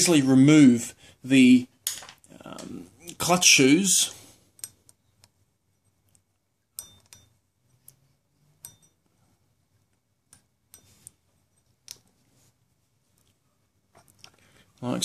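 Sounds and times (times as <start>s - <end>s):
faint metal clicks and taps: 4.5s - 8.0s, 8.6s - 9.2s, 9.8s - 12.2s.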